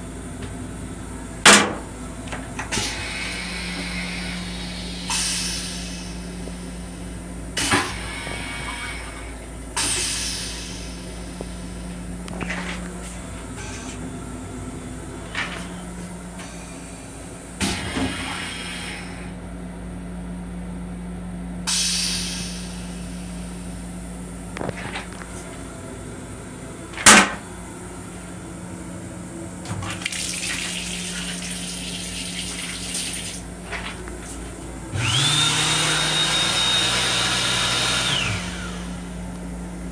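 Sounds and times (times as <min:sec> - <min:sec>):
toilet flushing with whine: 0:00.0 - 0:19.4, 0:21.6 - 0:24.4, 0:29.6 - 0:39.9.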